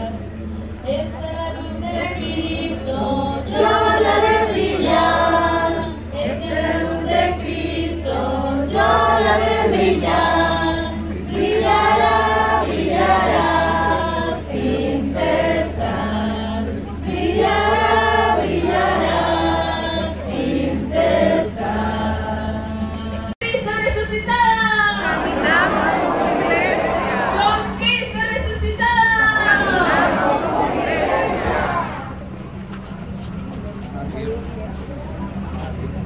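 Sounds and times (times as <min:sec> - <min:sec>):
congregation singing a hymn: 0:01.8 - 0:23.4, 0:25.0 - 0:27.8, 0:29.2 - 0:32.2
steady low hum: 0:24.9 - 0:36.0.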